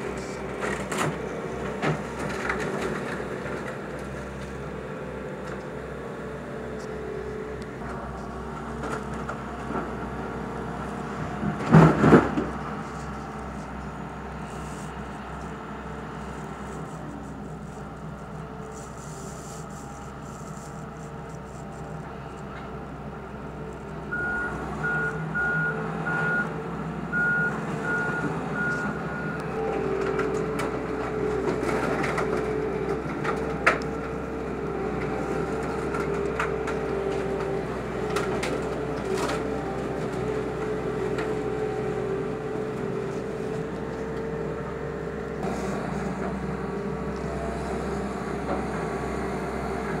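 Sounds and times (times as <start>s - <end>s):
excavator running: 0.0s - 50.0s
reversing alarm beeping: 24.1s - 29.6s.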